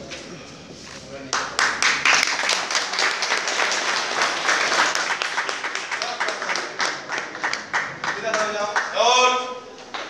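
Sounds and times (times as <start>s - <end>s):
crowd applauding: 1.3s - 10.0s.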